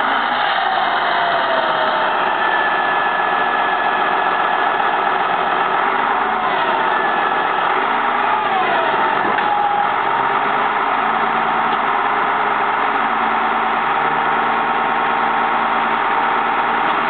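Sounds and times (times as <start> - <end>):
diesel engine running: 0.0 - 17.0
whining tones sliding in pitch: 0.0 - 17.0.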